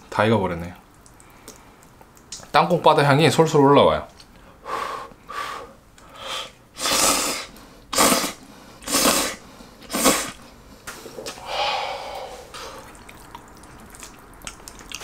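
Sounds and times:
man blowing on food: 4.6 - 10.4
long breath exhale: 11.4 - 12.8.

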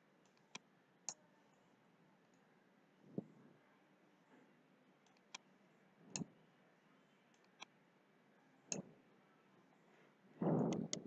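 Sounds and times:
computer mouse clicks: 7.3 - 7.7, 10.6 - 11.0.

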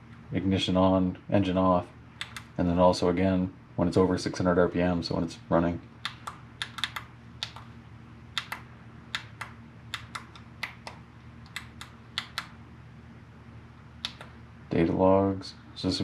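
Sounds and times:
faint low hum: 0.0 - 16.0.

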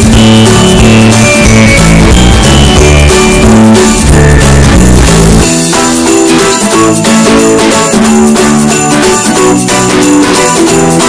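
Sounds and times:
guitar-led music with bass line: 0.0 - 11.0.

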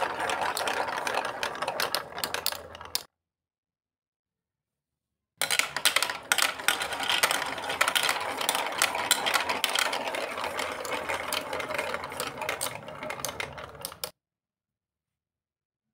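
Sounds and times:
plastic balls rattling down tracks: 0.0 - 3.1, 5.4 - 14.2.

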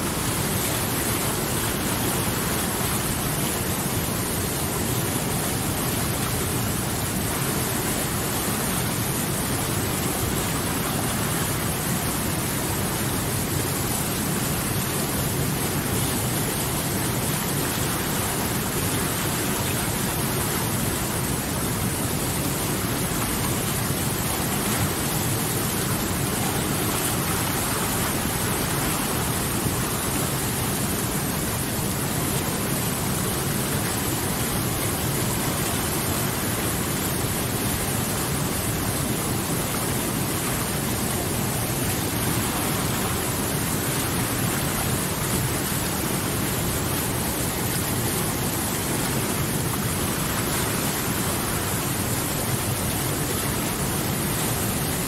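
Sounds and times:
stream rushing over boulders: 0.0 - 55.0.

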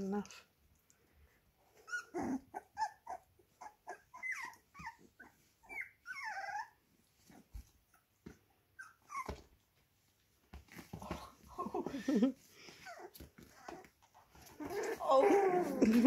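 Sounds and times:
puppy whining: 1.6 - 8.1, 8.7 - 9.7, 11.2 - 16.0
puppies yipping and growling: 1.7 - 6.9, 12.6 - 16.0.

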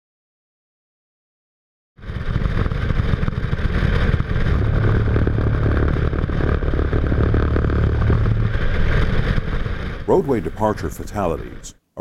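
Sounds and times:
road and tyre noise: 2.0 - 10.7
rumble strip drone: 2.0 - 11.8.

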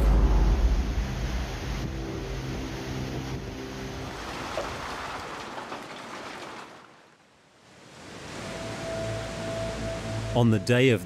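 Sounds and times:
rushing noise: 0.0 - 5.4.

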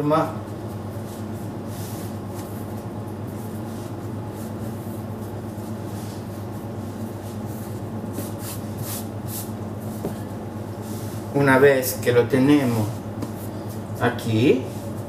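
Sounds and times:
low machine hum: 0.0 - 15.0
hands rubbing bread dough: 0.4 - 11.4.

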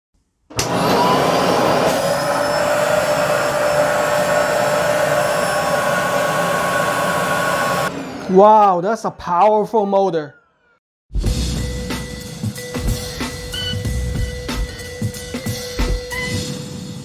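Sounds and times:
vacuum cleaner motor whining: 0.5 - 8.2.

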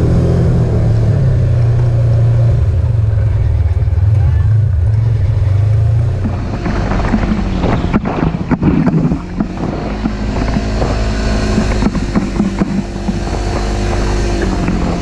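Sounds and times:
utility vehicle engine running: 0.0 - 15.0
wind on microphone: 5.1 - 15.0
vehicle body knocks and rattles: 6.2 - 15.0.

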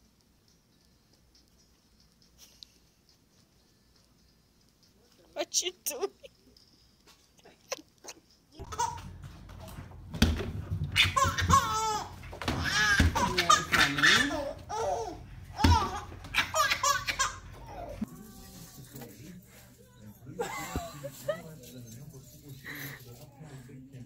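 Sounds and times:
baby laughing: 7.4 - 9.2, 11.0 - 18.1.

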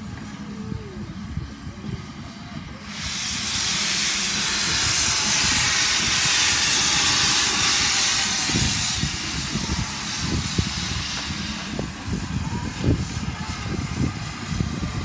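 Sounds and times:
steam locomotive hissing: 0.0 - 15.0.

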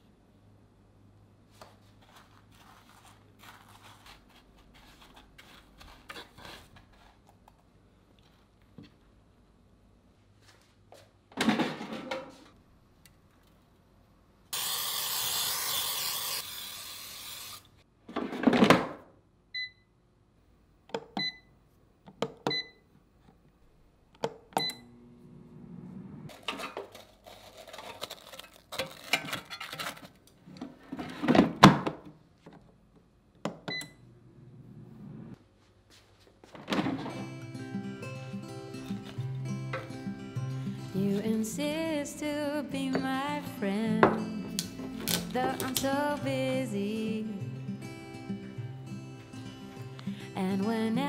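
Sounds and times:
cooking oil spray hissing: 14.6 - 17.8
air fryer electronic beeps: 19.6 - 19.9.

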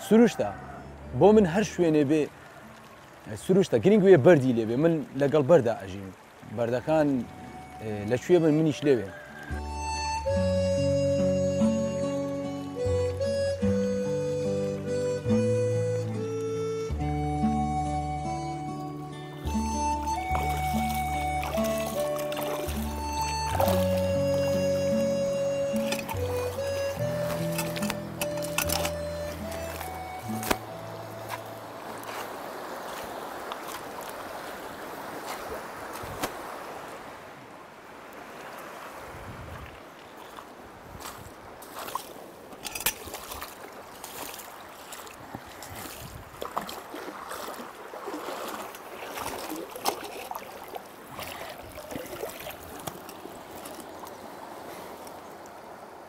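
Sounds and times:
river water splashing: 0.0 - 56.0
slow melody of long held notes: 7.2 - 8.4, 9.5 - 32.3.

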